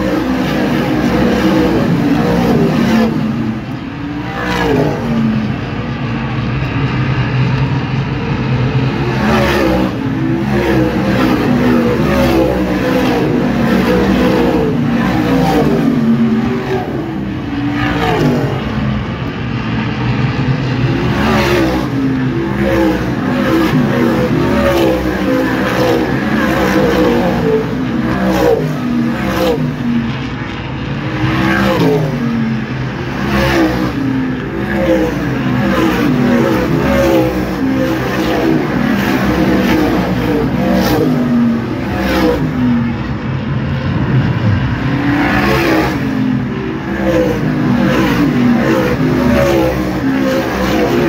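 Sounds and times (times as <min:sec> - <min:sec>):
race car engines passing: 0:00.0 - 0:51.0.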